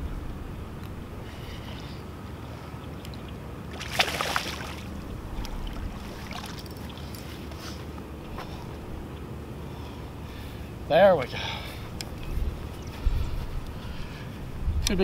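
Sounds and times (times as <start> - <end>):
fish splashing in water: 3.7 - 5.0, 5.6 - 6.7.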